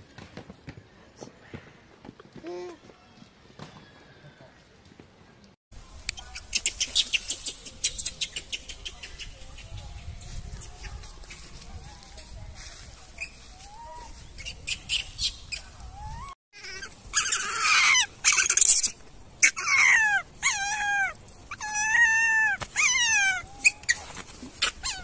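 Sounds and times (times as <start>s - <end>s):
baby monkey high-pitched cries: 13.2s - 25.0s
baby monkey screeching: 13.2s - 25.0s.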